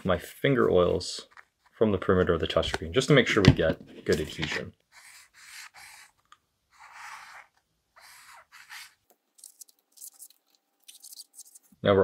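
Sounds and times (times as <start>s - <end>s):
cloth wiping a touchscreen: 4.9s - 10.4s.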